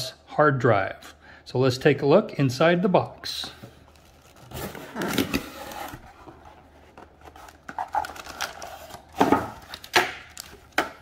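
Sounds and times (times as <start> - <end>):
packaging rustling and crinkling: 3.7 - 11.0.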